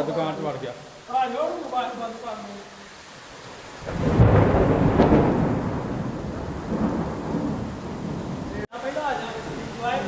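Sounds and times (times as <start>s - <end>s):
heavy rain: 0.0s - 10.0s
low thunder rumble: 3.8s - 8.7s
thunderclap: 3.8s - 8.7s.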